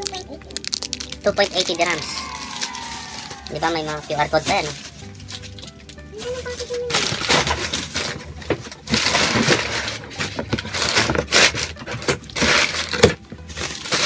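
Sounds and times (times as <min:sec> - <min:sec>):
plastic bags crinkling: 0:00.0 - 0:14.0
cardboard box rustling: 0:06.5 - 0:14.0.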